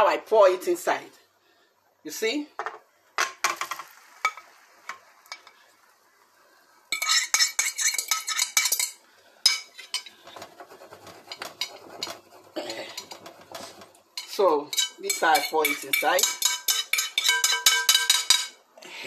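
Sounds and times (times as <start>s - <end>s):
low sizzle in frying pan: 0.0s - 19.0s
metal utensil scraping a bowl: 6.9s - 18.6s.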